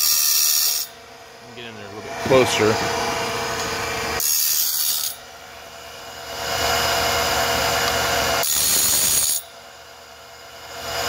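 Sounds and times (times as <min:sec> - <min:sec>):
grinding wheel on metal tooth: 0:00.0 - 0:01.0, 0:04.2 - 0:05.2, 0:08.4 - 0:09.5
motor hum: 0:00.8 - 0:08.5.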